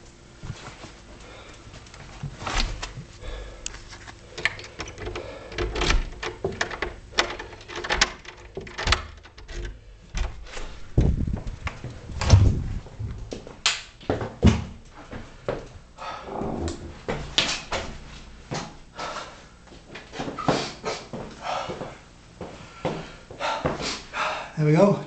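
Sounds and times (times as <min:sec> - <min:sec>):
door thumps: 0:10.1 - 0:11.4, 0:12.2 - 0:13.3.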